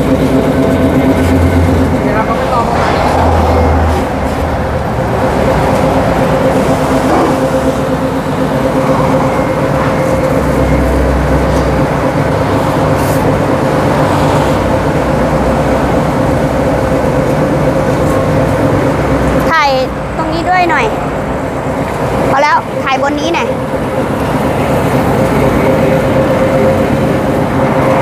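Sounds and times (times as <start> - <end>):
flail mower running: 0.0 - 28.0
steady mechanical hum: 0.0 - 28.0.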